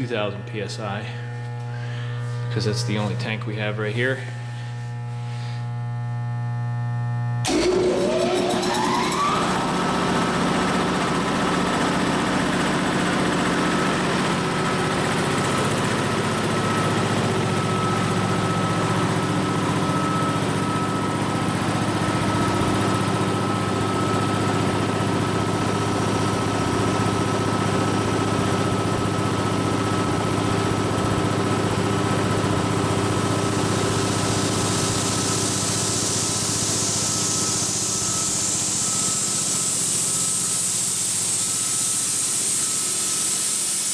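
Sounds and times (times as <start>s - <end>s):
air compressor humming and whining: 0.0s - 43.9s
high air hiss: 34.1s - 43.9s.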